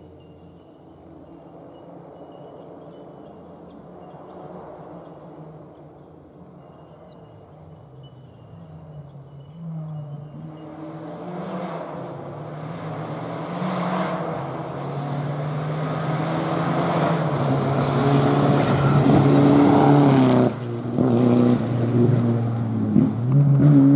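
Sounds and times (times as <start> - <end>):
rally car engine at full throttle: 8.6 - 23.9.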